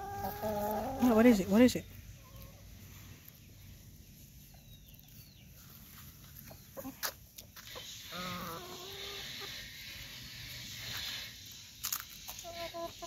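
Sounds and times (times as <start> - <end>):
hens clucking: 0.0 - 3.5, 6.2 - 11.0, 12.2 - 13.0
steady hiss: 5.6 - 13.0.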